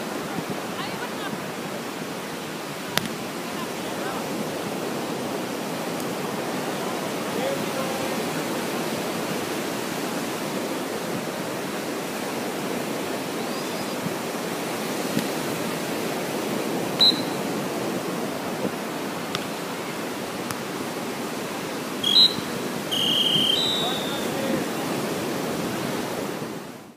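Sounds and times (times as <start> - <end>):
surf washing: 0.0 - 26.9
wind: 0.0 - 26.9
high-pitched chirps: 22.0 - 24.3.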